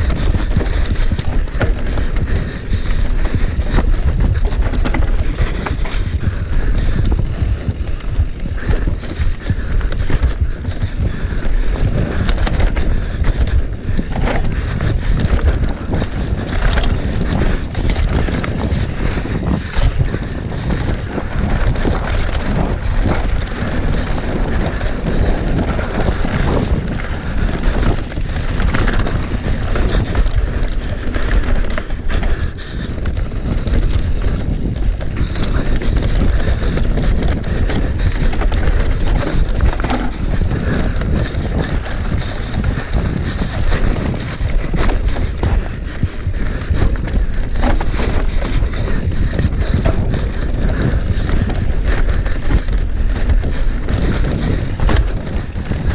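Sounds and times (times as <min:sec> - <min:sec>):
bike rattling and knocking: 0:00.0 - 0:55.9
wind rushing over microphone: 0:00.0 - 0:55.9.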